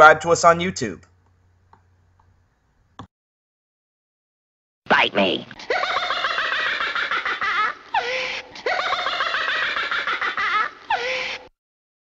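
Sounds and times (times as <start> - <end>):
high-pitched giggling laugh: 5.6 - 11.5.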